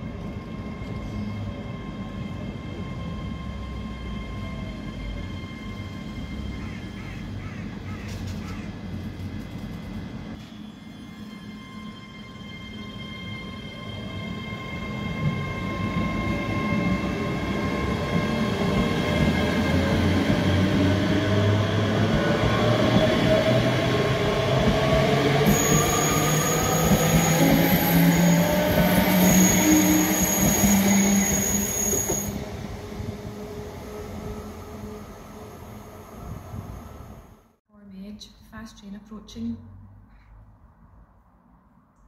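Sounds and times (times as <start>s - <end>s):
train wheels rumbling on rails: 0.2s - 10.7s, 14.7s - 34.4s
train whine rising in pitch: 10.4s - 37.5s
high squeal: 25.3s - 32.6s.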